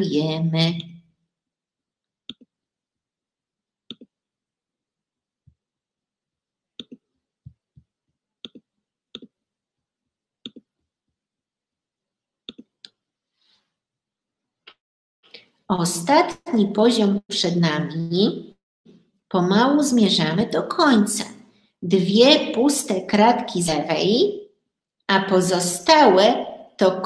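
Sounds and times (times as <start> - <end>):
computer mouse clicking: 2.3 - 2.5, 3.9 - 4.1, 6.8 - 7.0, 8.4 - 8.6, 10.4 - 10.7, 12.4 - 13.0.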